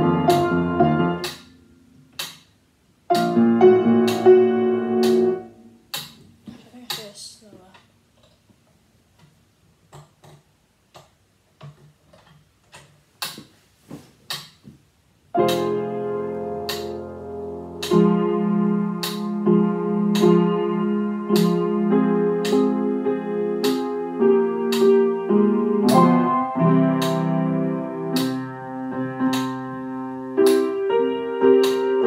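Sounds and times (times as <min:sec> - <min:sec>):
piano chords: 0:00.0 - 0:02.3, 0:03.0 - 0:06.2, 0:15.3 - 0:32.0.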